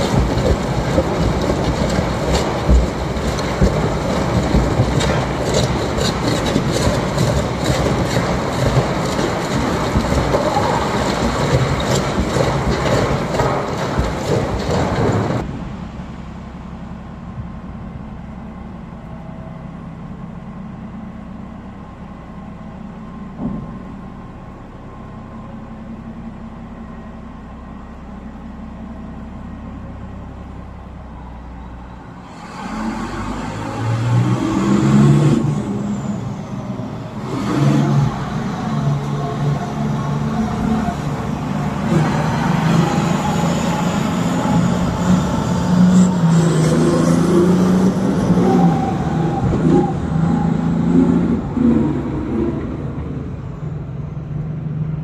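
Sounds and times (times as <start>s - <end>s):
rock and machinery clatter: 0.0s - 15.5s
low engine hum: 0.0s - 55.0s.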